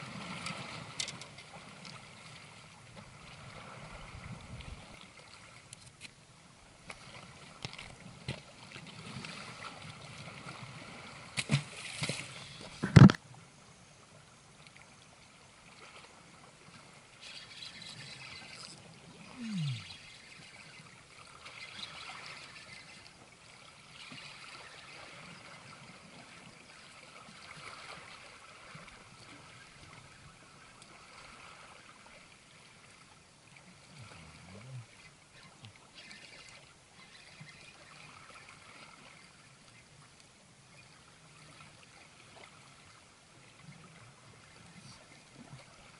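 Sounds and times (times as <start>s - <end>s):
water lapping against rocks: 16.9s - 33.0s.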